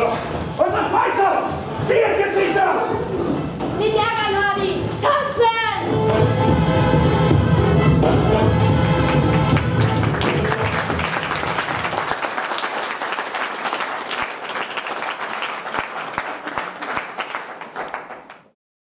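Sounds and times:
music: 0.0s - 12.2s
audience applauding: 8.8s - 18.6s.

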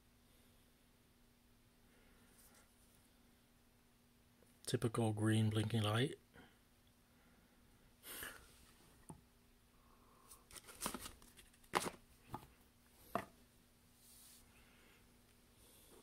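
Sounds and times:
soft rustle of cardboard: 13.9s - 14.7s.

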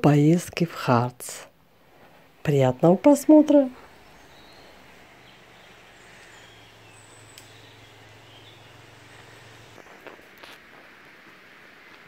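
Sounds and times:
low steady hum: 0.0s - 12.0s
soft steady hiss: 0.0s - 12.0s
faint bird chirps: 3.7s - 10.1s.

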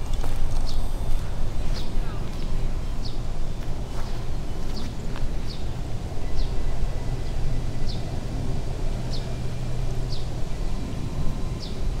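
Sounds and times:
bird chirping: 2.8s - 8.2s, 10.1s - 11.9s.

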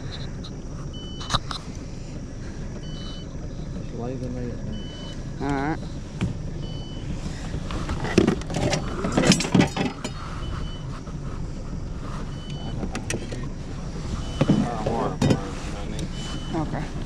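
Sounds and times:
steady low rumble: 0.0s - 17.0s
fishing gear clattering on metal boat: 7.8s - 10.2s.

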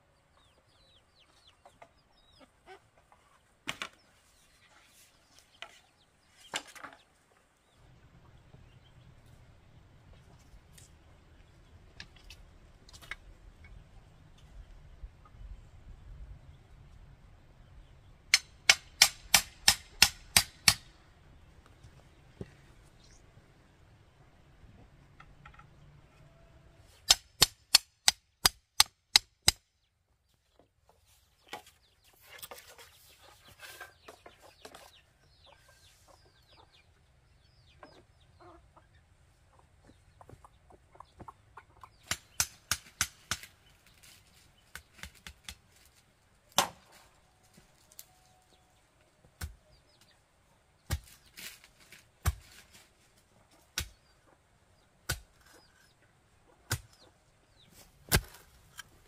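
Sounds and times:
machete knocking bamboo: 18.3s - 20.9s, 27.1s - 29.6s, 42.0s - 43.5s, 46.6s - 46.8s, 58.1s - 58.4s
tools striking soil: 18.3s - 20.9s, 42.0s - 43.6s, 50.9s - 52.7s, 55.1s - 55.9s, 58.0s - 59.0s.

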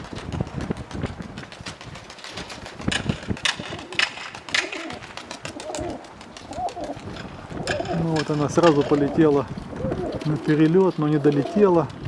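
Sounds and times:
pigeon wing claps: 0.0s - 12.0s
pigeons cooing: 3.5s - 11.9s.

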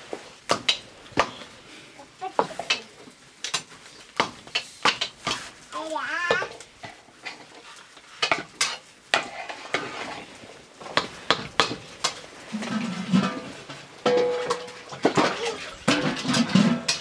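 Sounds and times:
metal ladle scraping in a pot: 7.2s - 10.5s, 12.0s - 15.1s.

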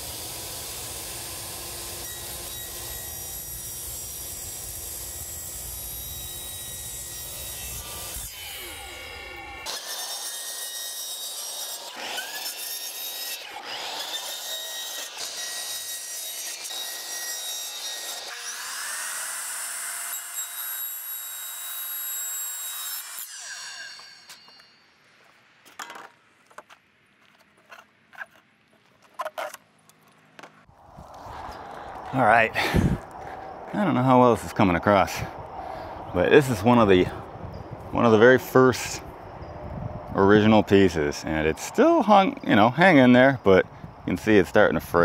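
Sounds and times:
miter saw cutting plastic tubing: 0.0s - 24.7s.

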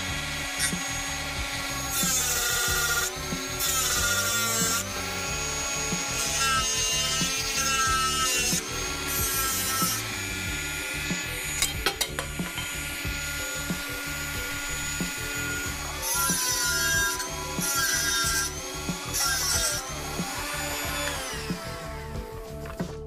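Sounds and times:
rotary tool drilling into steel: 0.0s - 22.1s.

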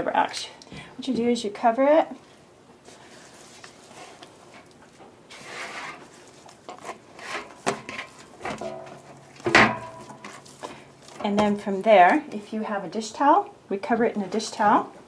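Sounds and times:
hands rubbing dough in bowl: 2.8s - 8.3s.

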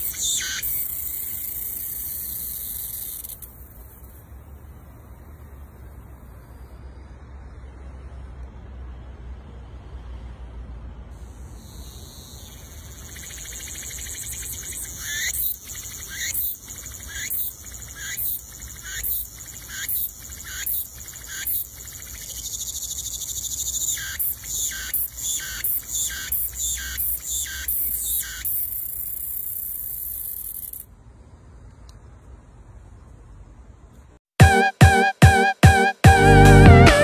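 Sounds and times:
cicada buzzing: 0.0s - 4.2s, 11.2s - 30.9s.

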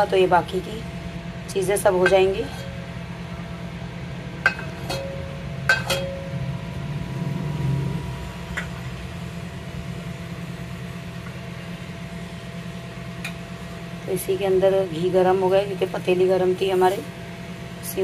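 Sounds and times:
steady low hum: 0.0s - 18.0s
metal cookware clinking: 2.0s - 2.8s, 4.4s - 6.3s.

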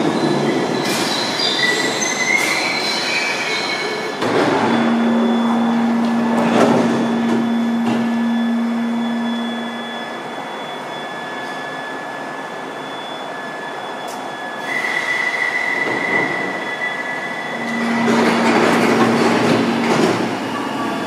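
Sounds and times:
high-pitched tone: 4.5s - 11.6s, 16.6s - 21.0s.

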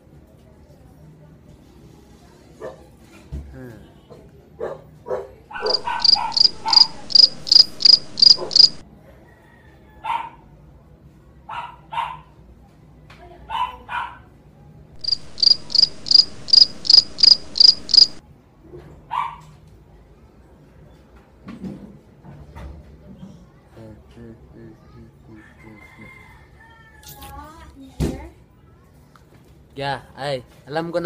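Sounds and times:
dog yipping: 4.6s - 8.8s, 10.0s - 10.4s, 11.5s - 12.3s, 13.5s - 14.3s, 19.1s - 19.5s
cricket chirping: 5.6s - 8.8s, 15.0s - 18.2s.

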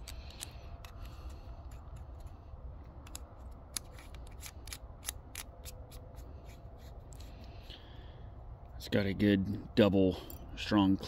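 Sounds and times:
metallic clicks and scraping: 0.0s - 7.8s.

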